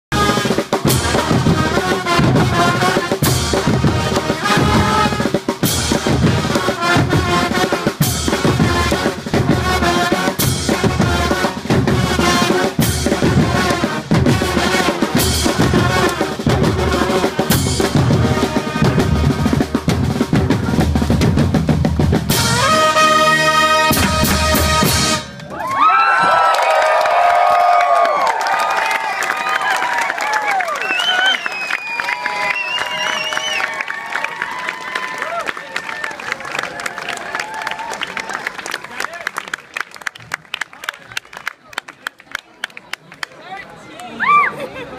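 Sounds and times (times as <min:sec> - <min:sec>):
drums and cymbals: 0:00.1 - 0:25.4
brass band playing: 0:00.1 - 0:25.5.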